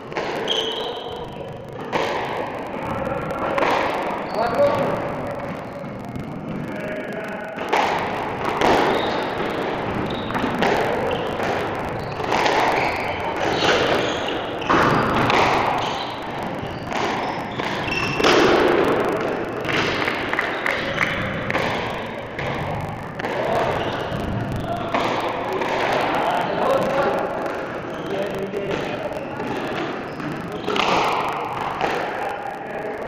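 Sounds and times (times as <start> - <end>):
rackets striking squash ball: 7.6 - 27.8, 28.7 - 32.3.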